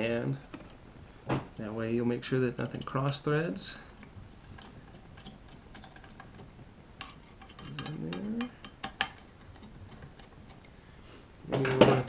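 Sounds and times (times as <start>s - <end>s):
screwdriver clicks and taps on metal: 7.0s - 10.7s.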